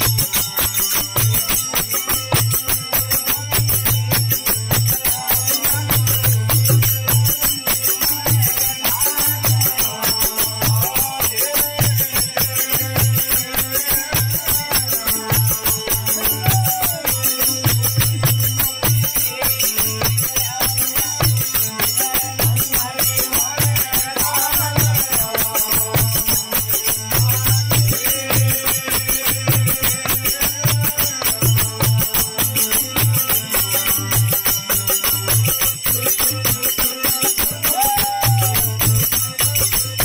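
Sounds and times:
hand cymbals jingling: 0:00.0 - 0:40.0.

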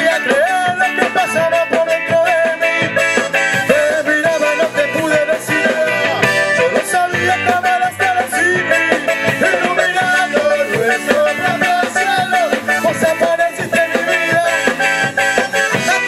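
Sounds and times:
live rock band: 0:00.0 - 0:16.0
person singing: 0:00.0 - 0:16.0.

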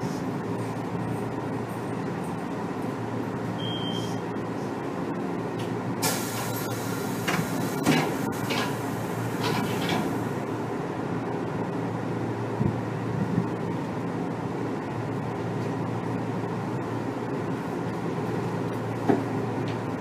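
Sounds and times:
train equipment humming: 0:00.0 - 0:20.0
brief high beep: 0:03.6 - 0:04.2
compressed air hiss: 0:06.0 - 0:07.2.

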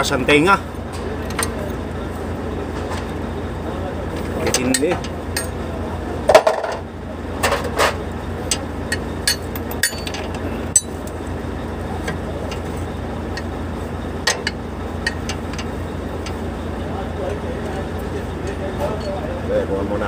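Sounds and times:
steady low hum: 0:00.0 - 0:20.0
metal tools clinking: 0:01.2 - 0:01.7, 0:04.2 - 0:05.6, 0:07.5 - 0:11.1, 0:14.2 - 0:16.4, 0:18.4 - 0:19.3.

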